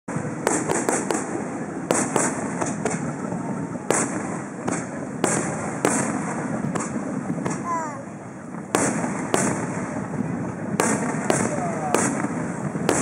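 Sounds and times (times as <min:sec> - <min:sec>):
firework bursts: 0:00.1 - 0:13.0.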